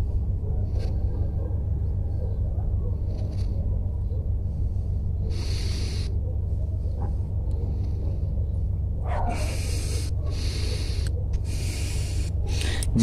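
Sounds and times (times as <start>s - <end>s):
steady low rumble: 0.0s - 13.0s
person breathing out: 11.6s - 13.0s.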